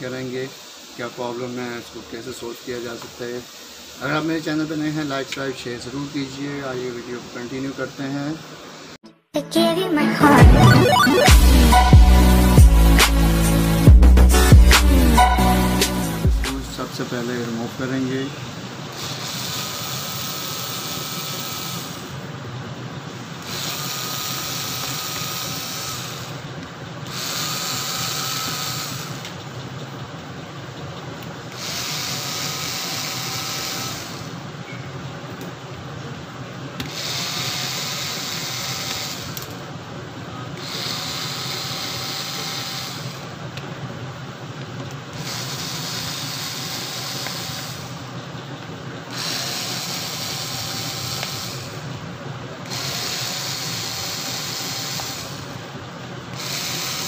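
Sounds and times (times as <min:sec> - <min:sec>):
electric screwdriver whining: 0:19.0 - 0:22.1, 0:23.4 - 0:26.4, 0:27.1 - 0:29.4, 0:31.5 - 0:34.4, 0:36.8 - 0:39.5, 0:40.6 - 0:43.3, 0:45.2 - 0:48.0, 0:49.1 - 0:51.8, 0:52.6 - 0:55.6, 0:56.3 - 0:57.0.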